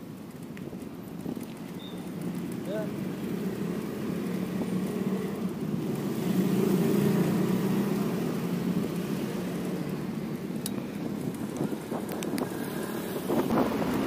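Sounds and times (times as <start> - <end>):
vehicle engine drone: 0.9 - 14.0.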